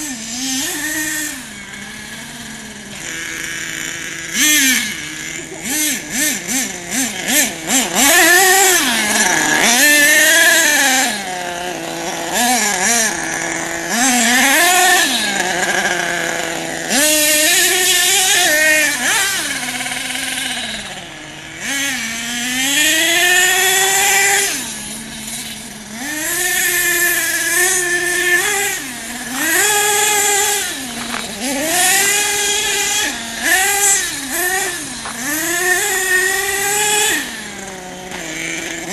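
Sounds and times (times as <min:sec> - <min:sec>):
small nitro engine revving: 0:00.0 - 0:38.9.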